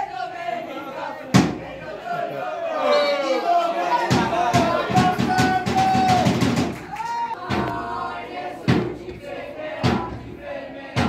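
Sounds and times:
voices shouting outdoors: 0.0s - 8.4s.

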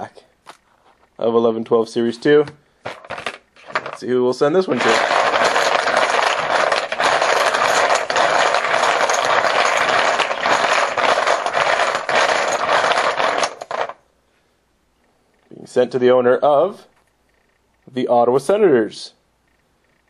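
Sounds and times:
poker chips rattling in a bucket: 2.8s - 14.0s.

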